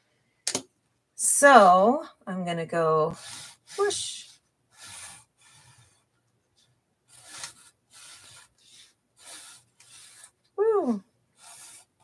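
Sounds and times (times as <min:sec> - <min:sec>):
marker rubbing on paper: 0:03.1 - 0:06.1, 0:07.1 - 0:10.4, 0:11.4 - 0:12.0.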